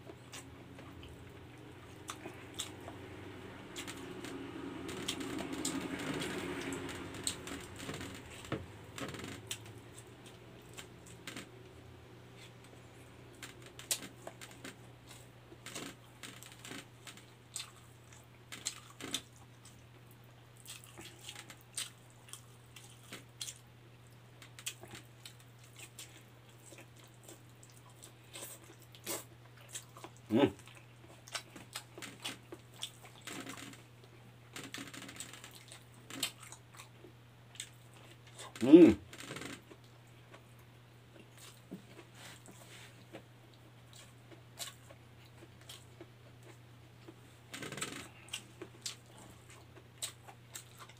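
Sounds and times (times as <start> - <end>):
steady low hum: 0.0 - 50.9
chewing and lip smacks: 16.3 - 36.9, 39.6 - 47.2, 48.1 - 50.9.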